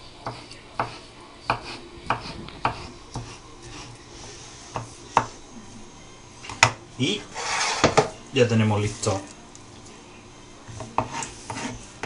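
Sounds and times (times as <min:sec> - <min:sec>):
knife chopping on wooden board: 0:00.2 - 0:03.3.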